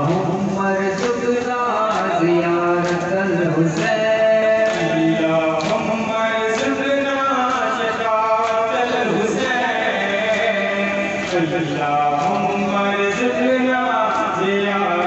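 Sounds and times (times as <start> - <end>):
men chanting a lament: 0.0 - 15.0.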